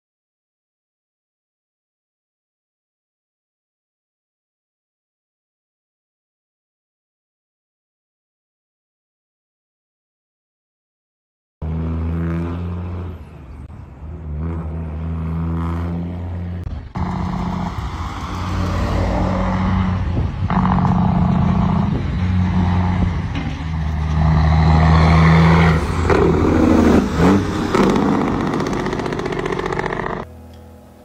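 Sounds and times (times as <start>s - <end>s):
diesel truck engine running hard: 11.6s - 30.3s.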